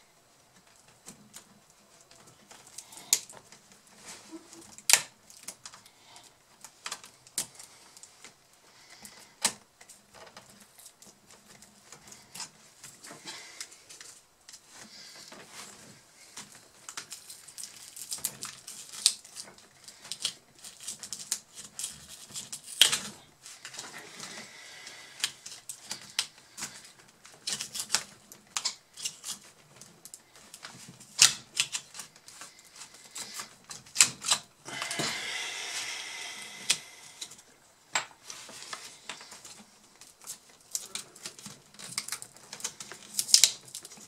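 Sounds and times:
small parts and tools clicking: 0:16.4 - 0:24.4, 0:25.2 - 0:35.0, 0:36.6 - 0:44.0.

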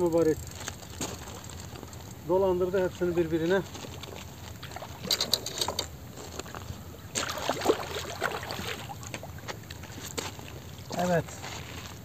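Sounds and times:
fish splashing in shallow water: 0:03.9 - 0:06.1, 0:06.7 - 0:10.9.

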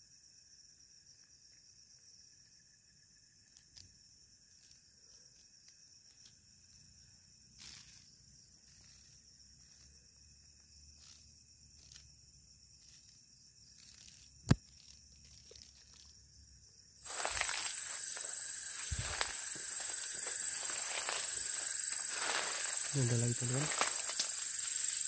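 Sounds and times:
high-pitched chirring of insects: 0:00.0 - 0:25.0
loud insect chorus: 0:00.0 - 0:25.0
light rustle: 0:17.0 - 0:25.0.

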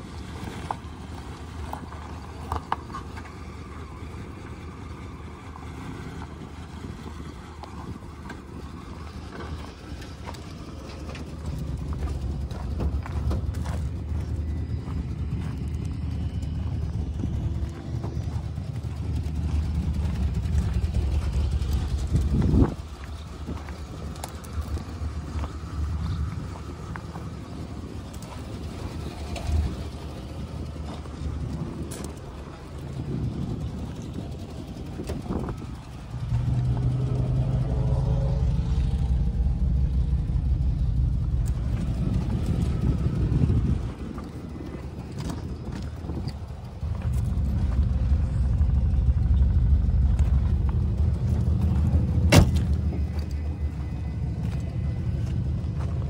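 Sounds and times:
wind rumbling on microphone: 0:00.0 - 0:56.0
footsteps crunching on gravel: 0:10.2 - 0:29.6, 0:40.1 - 0:56.0.

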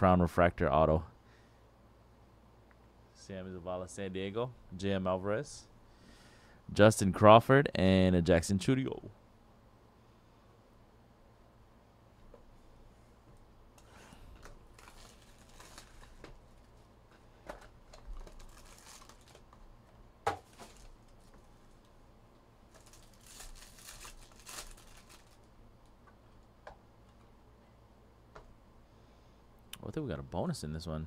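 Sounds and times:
foil wrappers crinkling and tearing: 0:14.4 - 0:16.8, 0:17.9 - 0:19.7, 0:20.4 - 0:21.9, 0:22.7 - 0:25.6.

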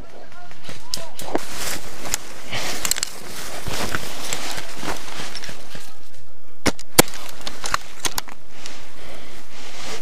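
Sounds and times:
rifle bolt clicks and knocks: 0:02.8 - 0:03.2, 0:06.6 - 0:08.4.

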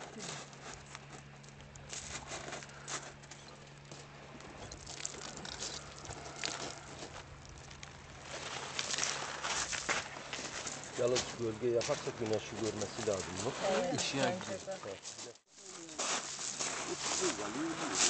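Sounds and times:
faint steady hum: 0:00.0 - 0:17.9
pebbles clicking and rattling: 0:00.4 - 0:10.9.

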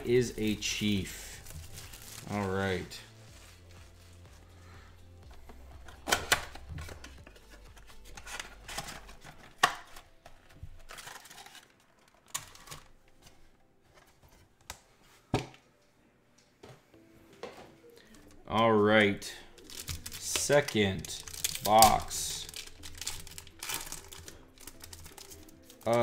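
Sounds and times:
foil packs crinkling: 0:00.2 - 0:13.1, 0:19.2 - 0:26.0.

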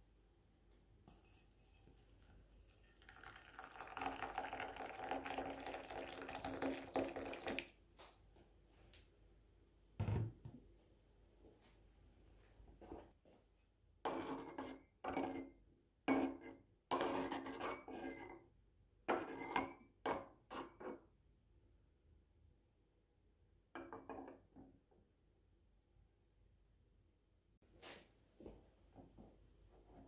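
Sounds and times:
scoop scraping ceramic teapot: 0:01.1 - 0:04.3, 0:16.2 - 0:18.3.

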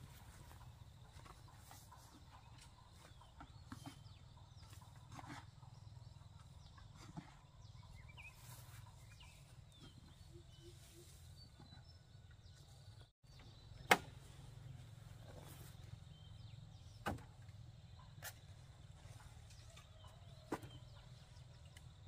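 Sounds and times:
bird chirps: 0:00.5 - 0:17.2.

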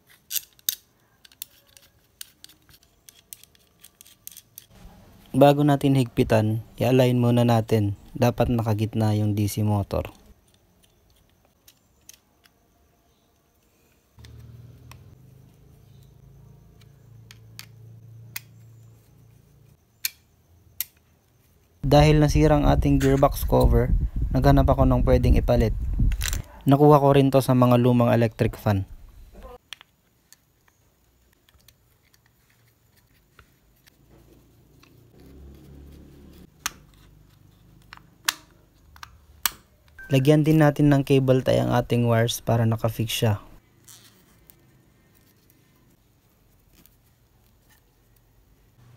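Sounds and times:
small metal parts clicking: 0:00.0 - 0:04.8
steady low hum: 0:21.8 - 0:26.6.

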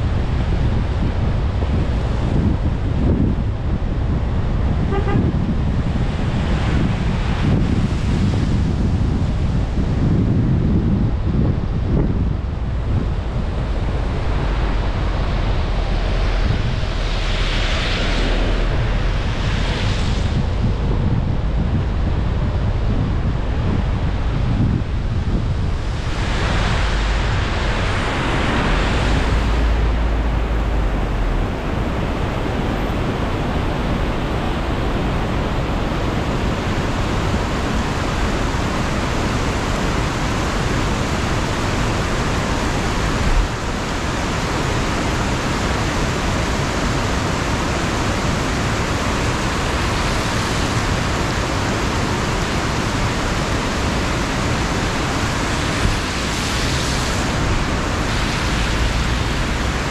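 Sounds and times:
tyre noise on wet road: 0:00.0 - 0:59.9
rain hiss: 0:12.2 - 0:59.9.

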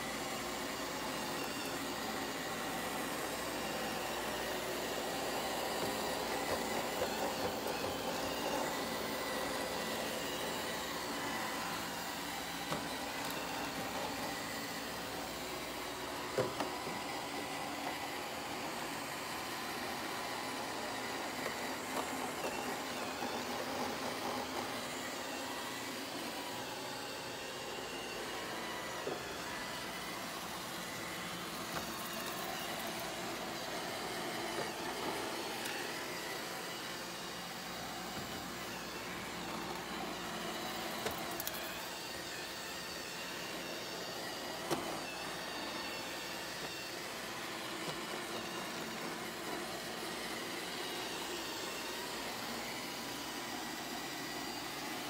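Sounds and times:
robot vacuum whirring: 0:00.0 - 0:55.0.

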